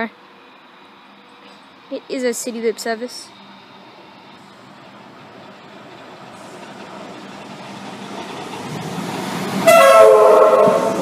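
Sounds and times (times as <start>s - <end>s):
electric train rumble: 0.0s - 11.0s
train horn blast: 9.6s - 11.0s.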